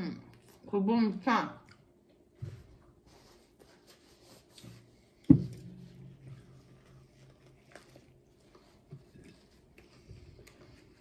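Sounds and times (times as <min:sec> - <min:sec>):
dull thump on table: 0:05.3 - 0:05.8
quiet chewing: 0:06.8 - 0:11.0.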